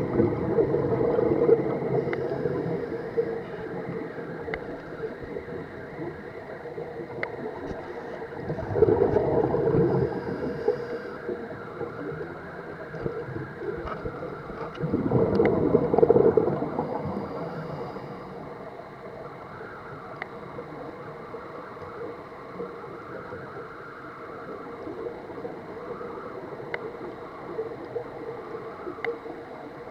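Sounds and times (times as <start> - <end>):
underwater exhaled bubbles: 0.0 - 29.9
faint clicks: 1.9 - 5.4, 7.0 - 8.2, 12.9 - 17.6, 20.1 - 20.4, 26.3 - 28.1, 28.8 - 29.4.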